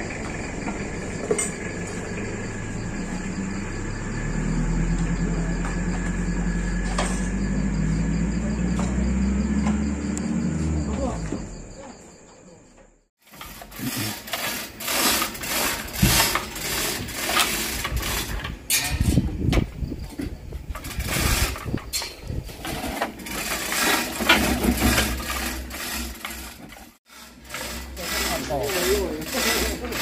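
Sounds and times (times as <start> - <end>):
rigging rattling and clanking: 0.0 - 4.2, 13.3 - 30.0.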